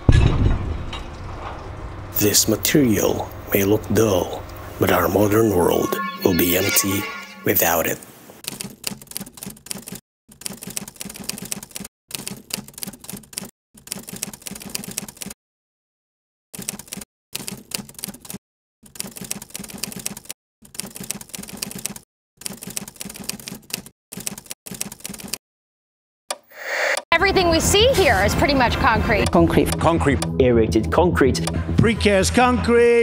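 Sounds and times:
typewriter keys clacking: 8.4 - 15.4, 16.6 - 25.4.

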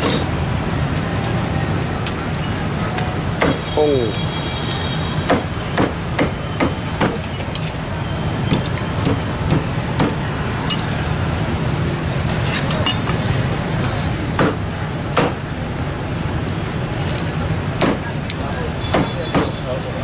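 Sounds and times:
street traffic hum: 0.0 - 20.0
cleaver chopping on wooden board: 3.4 - 3.7, 5.3 - 7.3, 8.5 - 10.2, 14.4 - 14.6, 15.2 - 15.4, 17.8 - 18.1.

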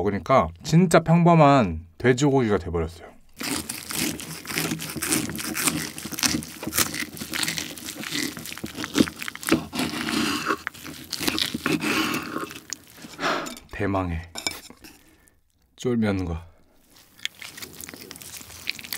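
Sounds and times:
knife cutting crackling pork skin: 3.4 - 13.7.

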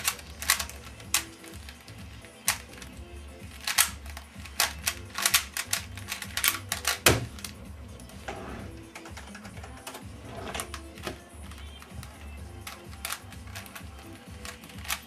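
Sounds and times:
cube thump and hands slapping timer: 0.0 - 7.6, 11.0 - 15.0
plastic puzzle cube clicking: 0.0 - 7.6, 8.8 - 15.0.

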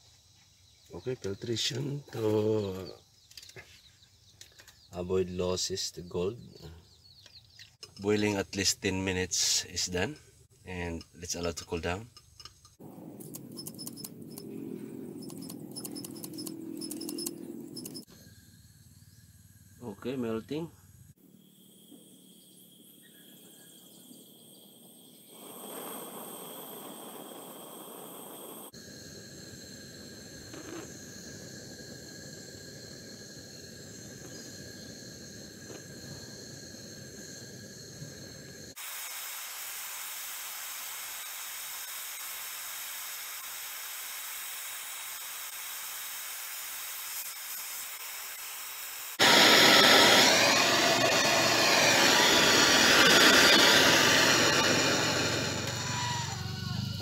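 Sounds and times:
gas torch flame hissing: 25.2 - 56.4.

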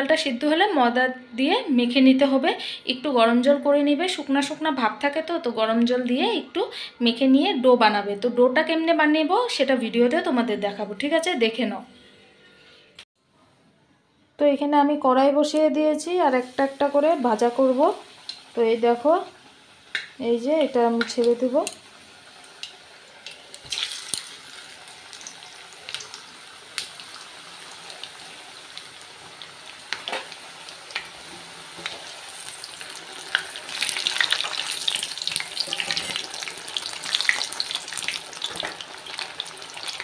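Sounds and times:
food deep-frying in hot oil: 16.0 - 40.0.

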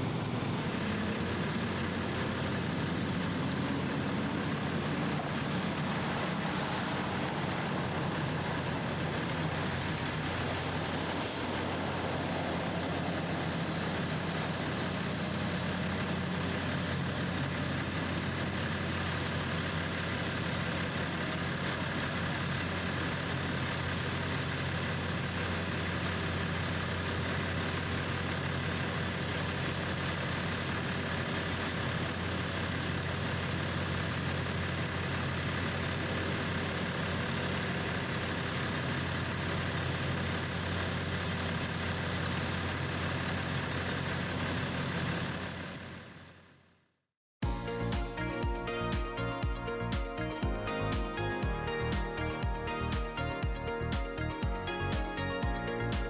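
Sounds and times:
heavy engine idling: 0.0 - 46.7.

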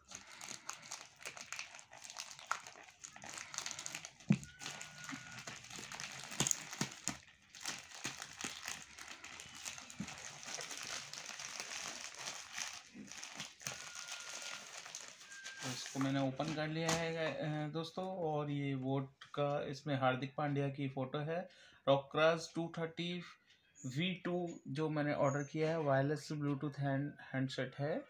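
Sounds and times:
plastic mailer crinkling: 0.0 - 17.2.

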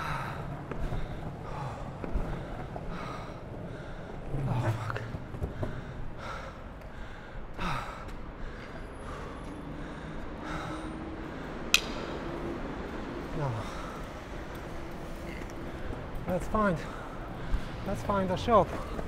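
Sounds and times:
man breathing hard: 0.0 - 17.9
skateboard wheels rolling on pavement: 0.0 - 19.0.

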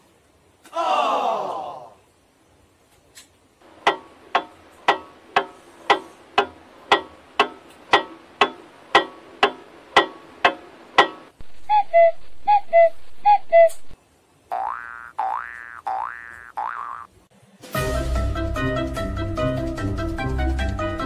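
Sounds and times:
clock ticking: 3.6 - 11.4.

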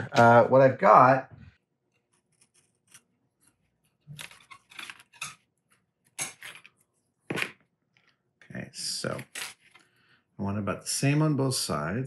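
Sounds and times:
wire rustling: 1.8 - 8.1.

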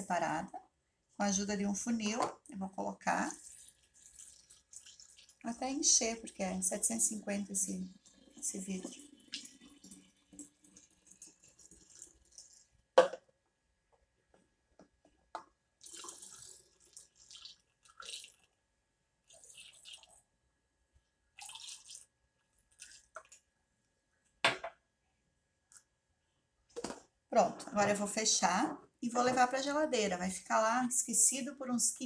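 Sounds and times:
liquid trickling and dripping: 3.3 - 5.6, 7.7 - 12.8, 15.8 - 18.6, 19.2 - 20.3, 21.3 - 23.5.

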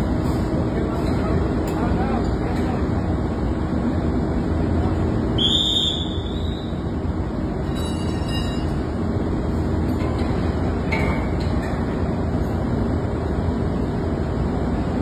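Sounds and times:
engine-room machinery drone: 0.0 - 15.0
light metallic clinks: 7.6 - 8.9.

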